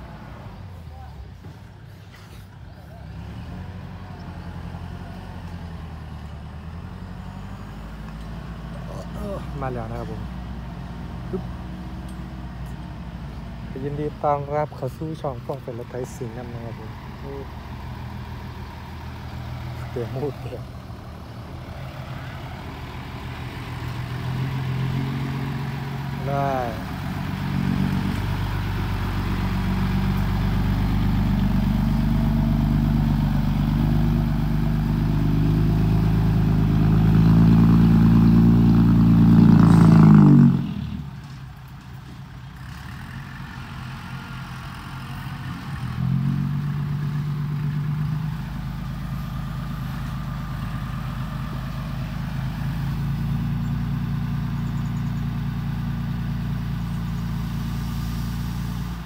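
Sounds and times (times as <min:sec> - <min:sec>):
diesel truck engine under load: 0:00.0 - 0:59.0.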